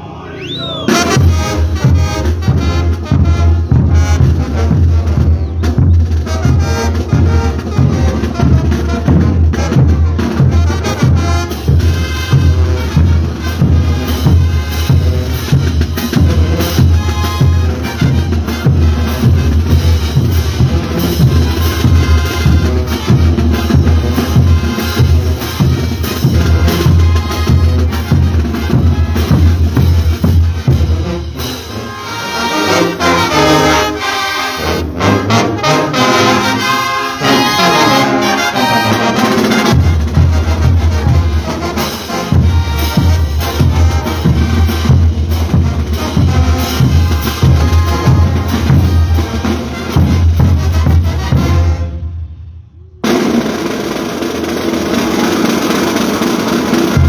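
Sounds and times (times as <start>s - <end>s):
brass band playing: 0.0s - 57.0s
bass drums and cymbals: 41.9s - 51.6s.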